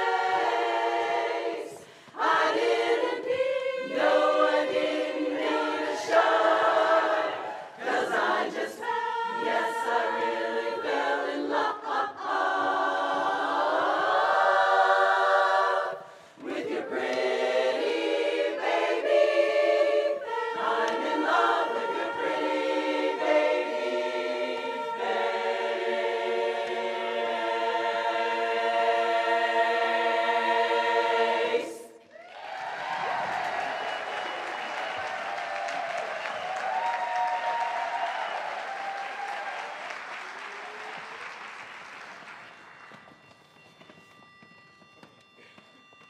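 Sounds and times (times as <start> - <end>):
women's chorus singing a cappella: 0.0 - 32.1.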